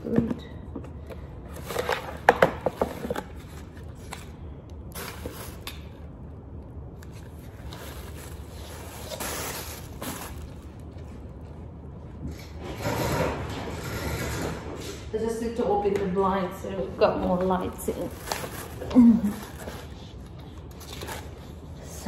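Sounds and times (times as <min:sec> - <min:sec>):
plastic wrapping rustling: 0:01.5 - 0:06.0, 0:07.0 - 0:11.4, 0:17.2 - 0:21.8.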